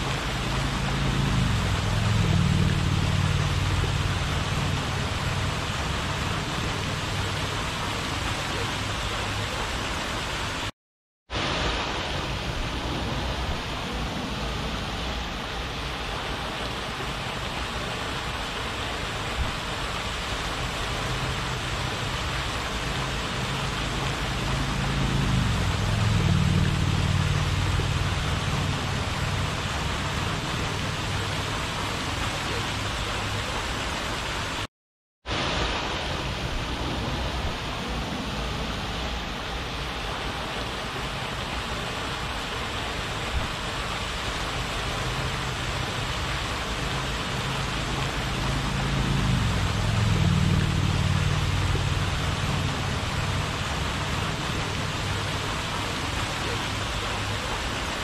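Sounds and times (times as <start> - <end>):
low motor hum: 0.0 - 7.4, 22.5 - 31.3, 47.8 - 55.2
fountain water splashing: 0.0 - 10.7, 11.3 - 34.7, 35.3 - 58.0.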